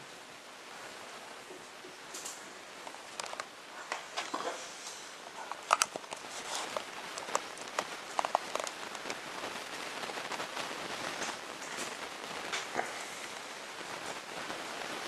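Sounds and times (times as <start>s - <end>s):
handling rustle: 2.8s - 9.3s.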